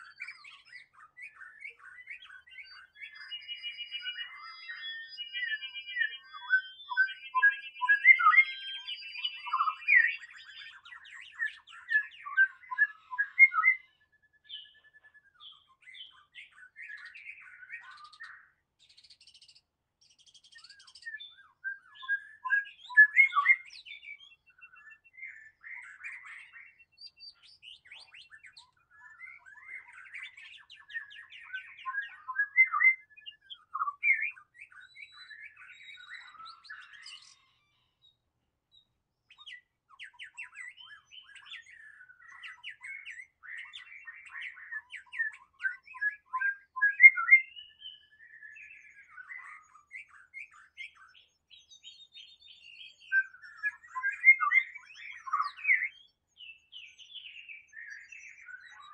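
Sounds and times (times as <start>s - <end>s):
bird singing whistles: 0.0s - 58.9s.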